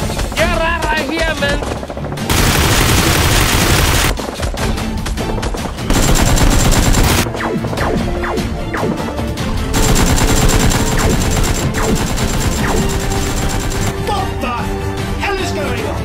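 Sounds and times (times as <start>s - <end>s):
background music: 0.0s - 16.0s
machine-gun fire: 0.9s - 4.6s, 5.9s - 7.5s, 9.7s - 14.1s.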